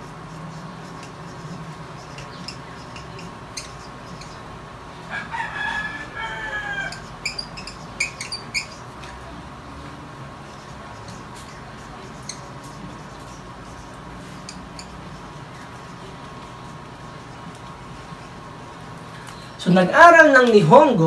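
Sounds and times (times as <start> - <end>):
marker squeaking on chart: 0.0 - 4.5, 6.2 - 9.2, 10.4 - 18.4
rooster crowing: 5.0 - 7.5.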